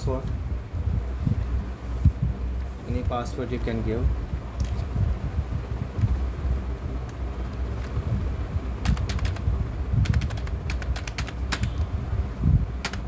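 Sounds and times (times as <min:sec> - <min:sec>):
steady low hum: 0:00.0 - 0:13.0
keyboard keys clicking: 0:08.8 - 0:11.8, 0:12.8 - 0:13.0.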